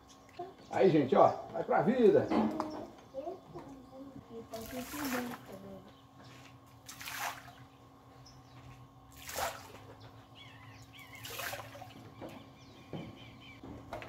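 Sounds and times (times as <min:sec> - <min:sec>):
splashes on water: 0:04.6 - 0:05.6, 0:06.8 - 0:07.6, 0:09.1 - 0:09.9, 0:11.1 - 0:12.0
faint bird chirps: 0:10.0 - 0:13.6.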